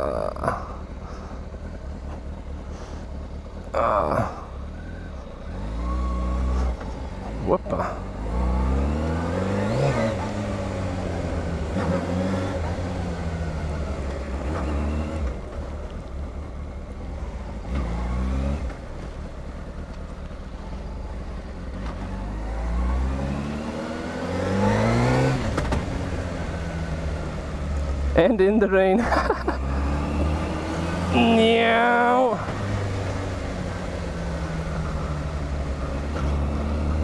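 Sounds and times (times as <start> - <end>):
motorcycle engine revving: 0.0 - 28.2, 29.1 - 37.0.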